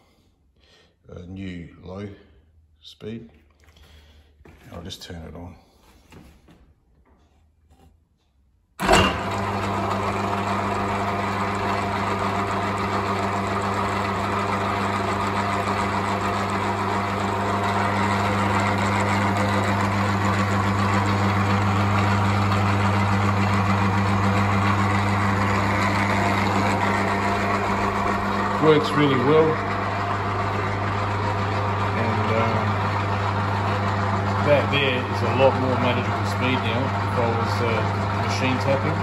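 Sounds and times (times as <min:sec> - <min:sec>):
belt drive whirring: 0:08.8 - 0:39.0
lathe motor hum: 0:08.8 - 0:39.0.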